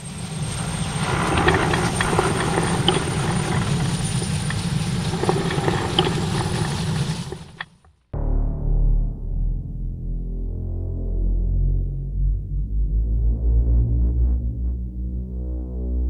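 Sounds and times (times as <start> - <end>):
thin high whine: 0.0 - 7.7
fluttering mechanical rumble: 0.0 - 7.9
scattered clicks: 0.9 - 7.9.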